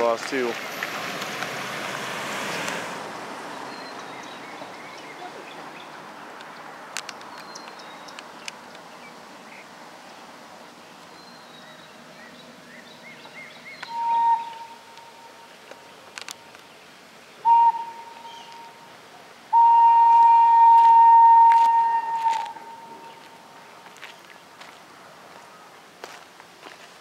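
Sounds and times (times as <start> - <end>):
background hiss: 0.0 - 27.0
small birds chirping: 2.5 - 14.7
locomotive whistle: 13.9 - 14.9, 17.4 - 18.8, 19.5 - 23.2.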